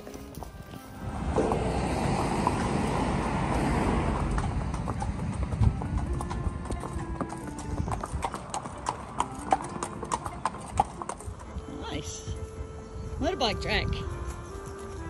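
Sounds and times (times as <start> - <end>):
car passing: 0.0 - 11.4
hooves clip-clopping on concrete: 0.0 - 15.0.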